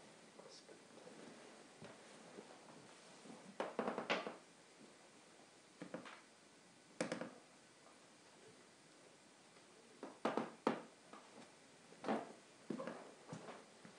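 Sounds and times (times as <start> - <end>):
objects knocking and tapping: 5.8 - 6.2, 7.0 - 7.4.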